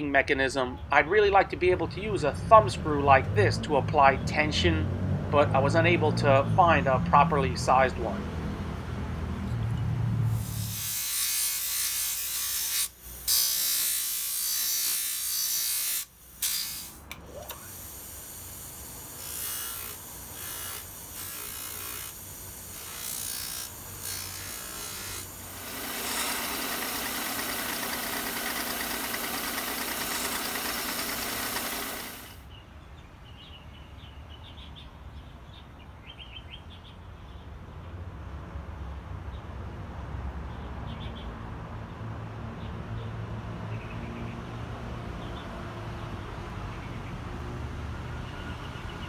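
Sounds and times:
steel blade grinding hiss: 0:10.3 - 0:32.4
wood grinding on sanding wheel: 0:18.6 - 0:32.4.

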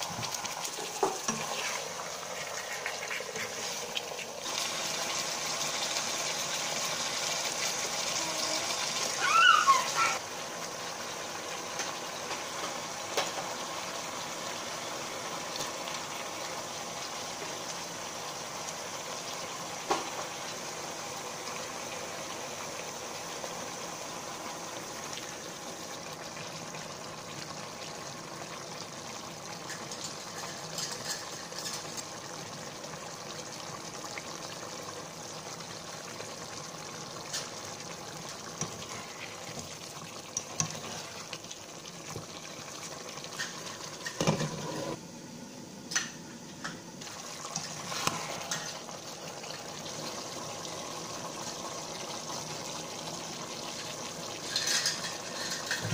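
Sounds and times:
water boiling in a pan: 0:00.0 - 0:55.9
metal spoon scraping a pan: 0:01.2 - 0:03.8, 0:54.4 - 0:55.9.

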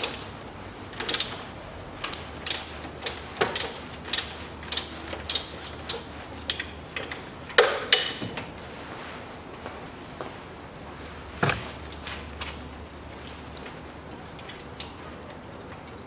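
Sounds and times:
socket ratchet wrench clicking: 0:01.0 - 0:01.4, 0:02.1 - 0:07.7.

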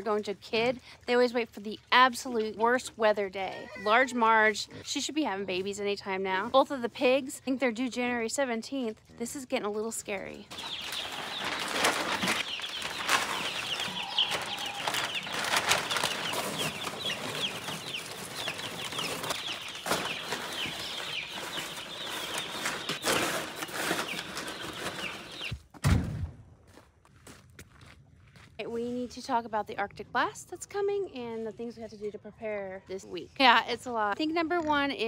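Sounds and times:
chicks peeping: 0:10.5 - 0:25.6.

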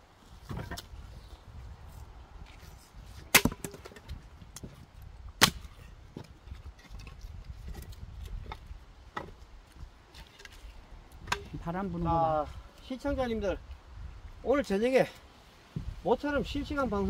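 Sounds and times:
axe chopping firewood: 0:03.2 - 0:04.7, 0:05.4 - 0:09.4, 0:11.2 - 0:11.6.

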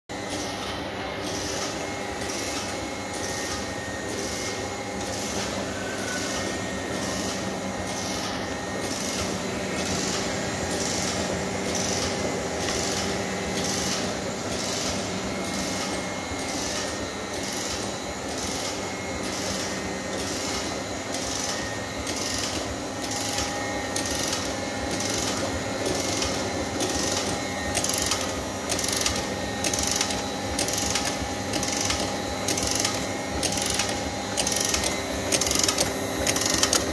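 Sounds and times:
label printing machine running: 0:00.1 - 0:36.9
regular mechanical clatter: 0:07.0 - 0:36.9.

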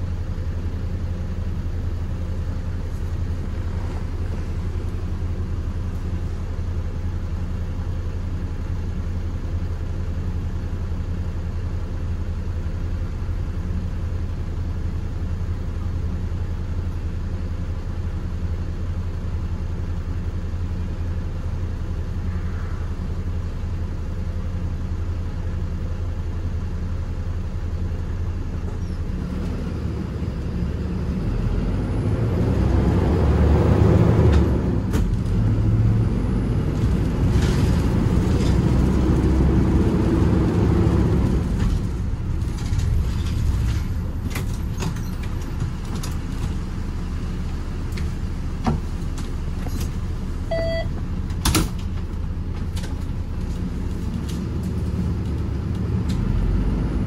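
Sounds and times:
engine and road rumble: 0:00.0 - 0:57.0
short beep: 0:50.5 - 0:51.0.

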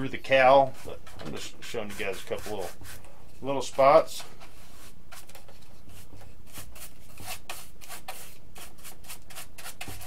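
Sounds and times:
paintbrush scratchy rubbing: 0:01.6 - 0:03.0.

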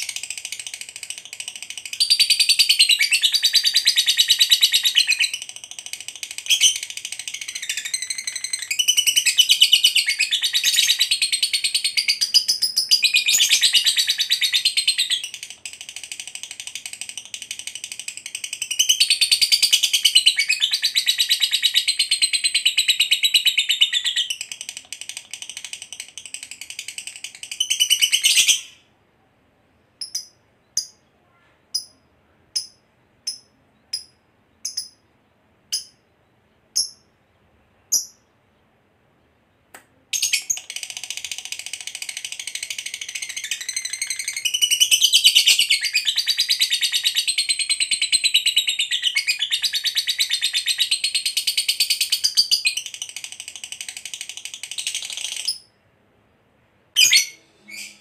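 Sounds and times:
bird chattering song: 0:00.0 - 0:28.9, 0:30.0 - 0:38.6, 0:39.5 - 0:55.7, 0:57.0 - 0:58.0
short bird chirps: 0:57.0 - 0:58.0.

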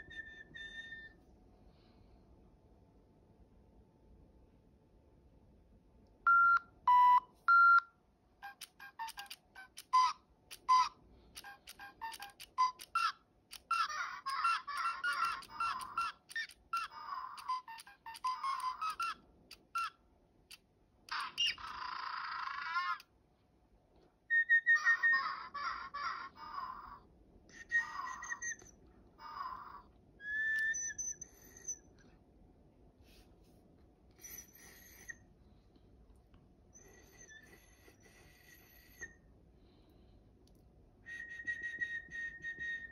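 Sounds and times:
electronic toy chirping and warbling: 0:00.0 - 0:01.2, 0:08.4 - 0:20.0, 0:21.1 - 0:23.0, 0:24.3 - 0:26.9, 0:27.6 - 0:31.8.

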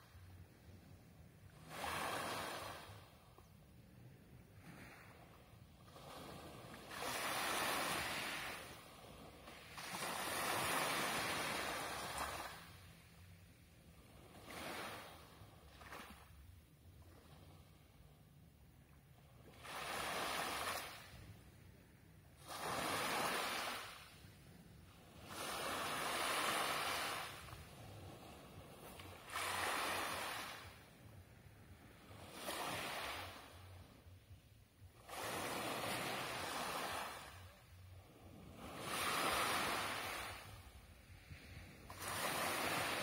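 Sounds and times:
waves washing on pebble beach: 0:41.8 - 0:43.0.

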